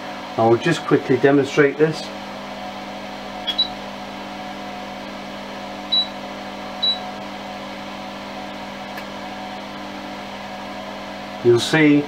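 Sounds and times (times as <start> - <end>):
extractor fan humming: 0.0 - 12.0
short high beeps: 3.4 - 3.8, 5.9 - 6.2, 6.8 - 7.0.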